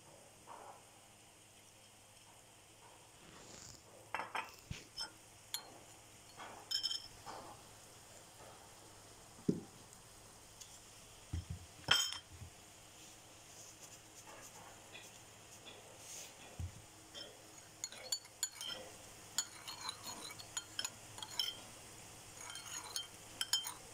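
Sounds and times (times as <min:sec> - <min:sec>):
metal spoon clinking ceramic bowl: 0:05.0 - 0:07.2, 0:11.9 - 0:12.3, 0:17.1 - 0:21.7, 0:22.4 - 0:23.9.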